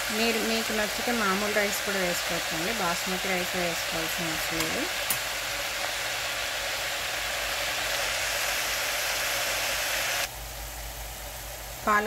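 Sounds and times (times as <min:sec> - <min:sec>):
spinach sizzling in hot oil: 0:00.0 - 0:12.0.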